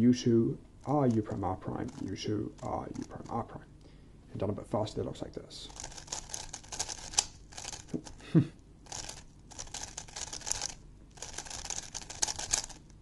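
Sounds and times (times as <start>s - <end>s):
plastic puzzle clicking and rasping: 0.9s - 3.4s, 5.7s - 8.2s, 8.9s - 13.0s.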